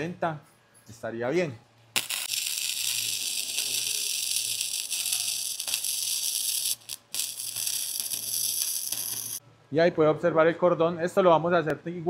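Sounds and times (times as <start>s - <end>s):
welding arc hissing crackle: 1.9s - 9.4s.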